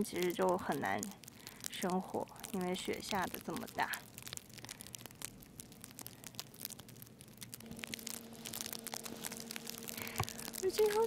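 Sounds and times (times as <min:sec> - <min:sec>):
steady low hum: 0:00.0 - 0:11.0
snow crunching: 0:07.6 - 0:11.0.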